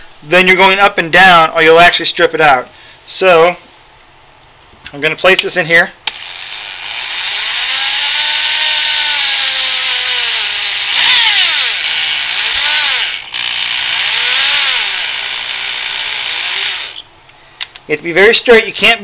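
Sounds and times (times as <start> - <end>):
drill motor whining: 6.1 - 17.1.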